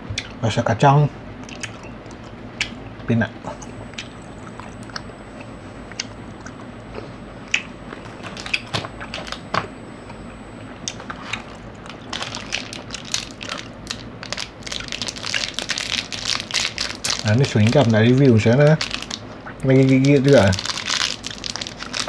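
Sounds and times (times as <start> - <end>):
snack crunching: 1.4 - 2.8, 3.6 - 9.4, 10.8 - 18.2, 18.8 - 22.0
plastic wrappers crackling: 8.2 - 9.4, 11.4 - 22.0.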